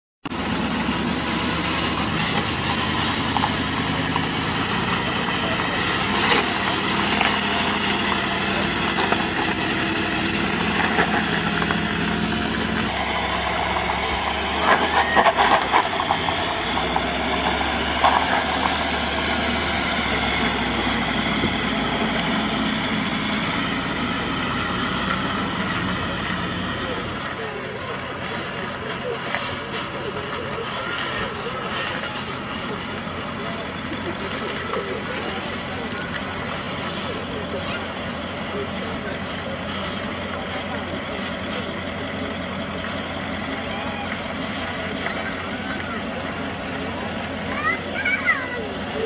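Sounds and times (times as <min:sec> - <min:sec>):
vehicle engine under load: 0:00.2 - 0:49.0.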